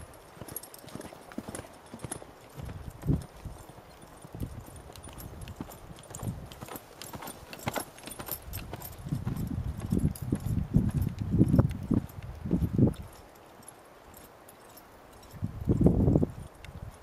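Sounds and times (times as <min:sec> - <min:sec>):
horse hoofbeats on sand: 0:00.0 - 0:17.0.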